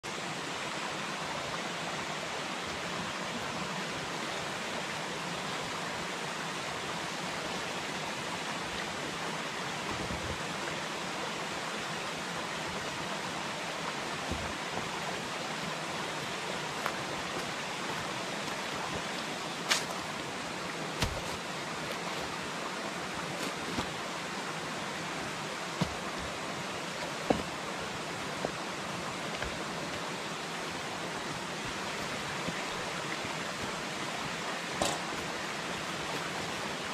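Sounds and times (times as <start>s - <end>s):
stream running over rocks: 0.0s - 36.9s
stones knocking on rocks: 21.0s - 22.3s, 25.8s - 26.3s, 27.0s - 27.6s, 34.7s - 35.3s.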